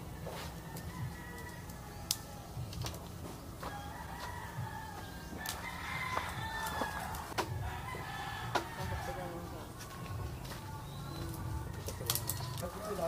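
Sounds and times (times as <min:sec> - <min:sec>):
rooster crowing: 0:00.3 - 0:02.7, 0:03.6 - 0:09.7.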